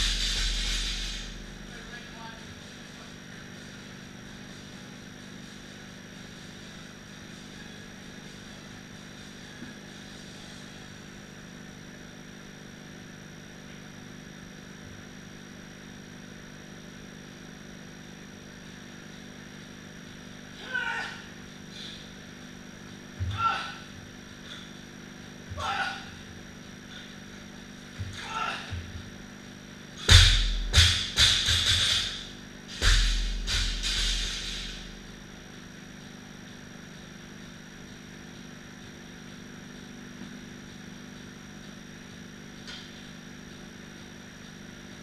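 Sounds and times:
room hum: 0:00.0 - 0:45.0
person shouting: 0:20.6 - 0:21.3, 0:23.2 - 0:23.9, 0:25.6 - 0:26.2, 0:28.1 - 0:28.8.

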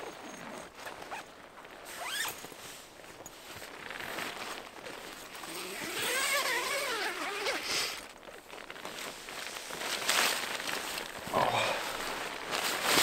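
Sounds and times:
rustling movement: 0:00.0 - 0:13.0
zipper being pulled: 0:00.3 - 0:01.3, 0:01.9 - 0:02.4, 0:05.4 - 0:08.0.

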